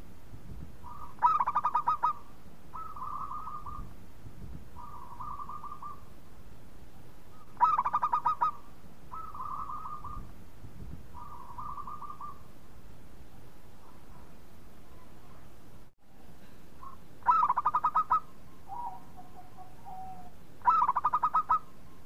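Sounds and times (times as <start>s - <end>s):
dove trilling coos: 0.8s - 3.9s, 4.7s - 6.1s, 7.3s - 10.3s, 11.1s - 12.5s, 16.8s - 22.0s.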